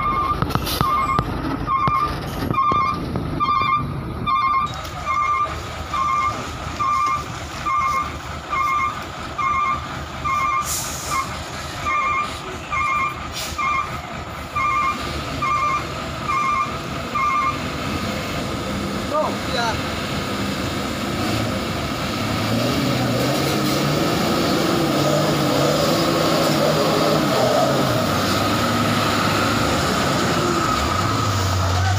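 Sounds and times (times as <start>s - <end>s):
truck reversing alarm beeping: 0.0s - 18.6s
diesel truck engine rumbling: 0.0s - 31.9s.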